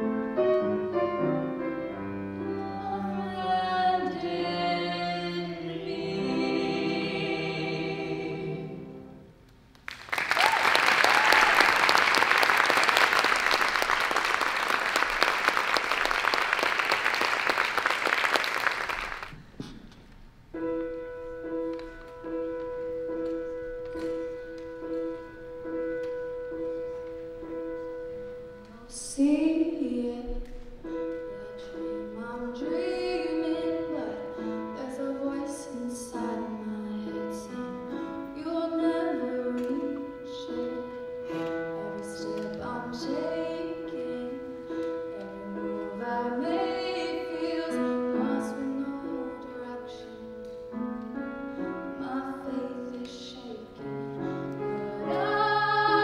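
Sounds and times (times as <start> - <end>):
grand piano playing: 0.0 - 9.4, 20.3 - 56.0
soprano singing: 0.0 - 9.4, 20.7 - 56.0
audience applauding: 9.8 - 19.5.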